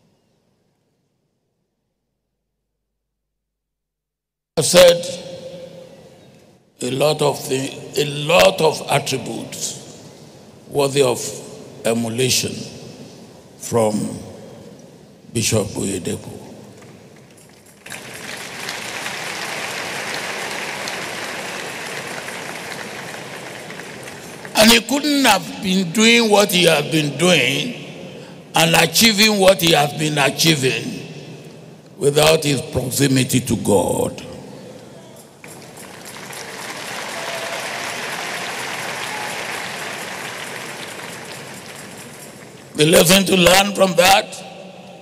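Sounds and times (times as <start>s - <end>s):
audience applauding: 17.5s - 24.7s, 35.4s - 42.7s.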